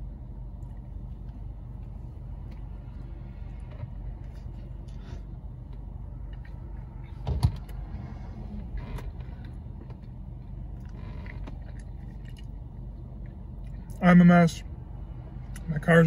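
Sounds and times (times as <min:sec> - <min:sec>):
car cabin hum: 0:00.0 - 0:16.0
mouth and chewing noises: 0:09.9 - 0:14.0.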